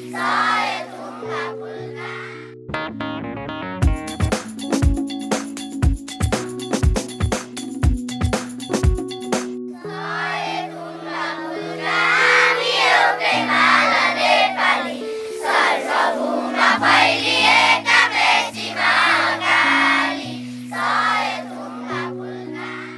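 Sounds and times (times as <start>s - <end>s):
children singing in chorus: 0.0s - 2.4s, 9.8s - 22.9s
sustained instrumental chords: 1.0s - 20.8s.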